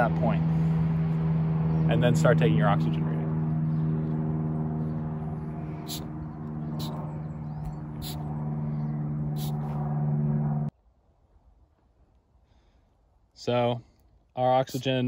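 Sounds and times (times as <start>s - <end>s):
low mechanical hum: 0.0s - 10.7s
sharp high clicks: 6.8s - 8.2s.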